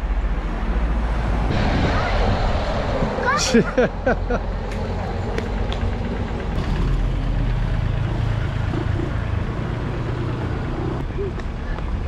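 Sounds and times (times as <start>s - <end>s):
road noise: 0.0s - 12.0s
vehicle engine humming: 0.0s - 12.0s.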